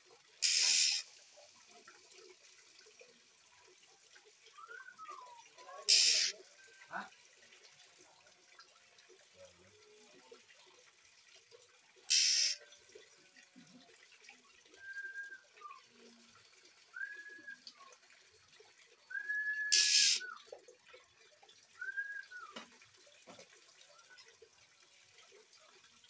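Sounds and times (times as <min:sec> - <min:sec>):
water trickling: 0:00.0 - 0:26.0
bird whistling: 0:00.4 - 0:01.0, 0:04.6 - 0:06.3, 0:12.1 - 0:12.6, 0:17.0 - 0:17.8, 0:19.1 - 0:20.4, 0:21.8 - 0:22.6
loud hissing bursts: 0:00.4 - 0:01.0, 0:05.9 - 0:06.3, 0:12.1 - 0:12.6.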